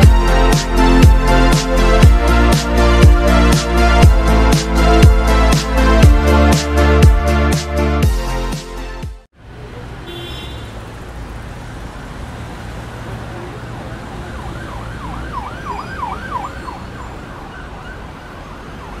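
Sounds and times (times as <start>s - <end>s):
city traffic rumble: 0.0s - 8.0s, 9.2s - 19.0s
emergency siren yelping: 14.0s - 19.0s.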